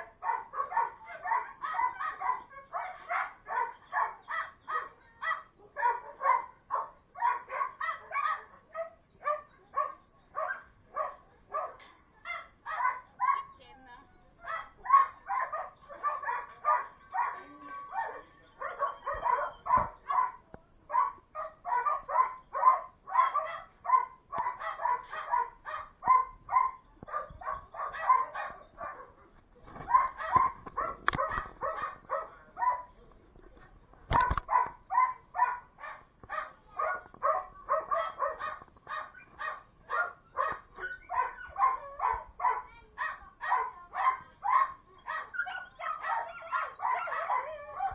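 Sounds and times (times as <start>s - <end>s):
dogs barking: 0.0s - 13.6s, 14.4s - 33.0s, 34.1s - 47.9s.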